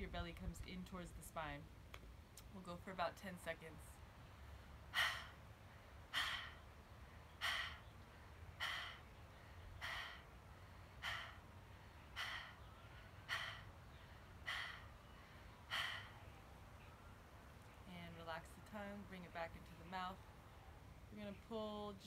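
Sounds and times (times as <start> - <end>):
sharp panting exhales: 4.8 - 16.4.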